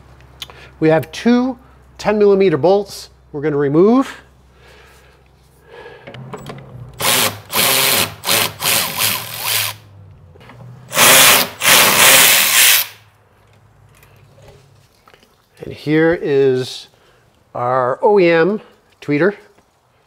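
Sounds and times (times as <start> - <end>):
cordless power tool spinning: 7.0 - 9.8, 10.9 - 13.0.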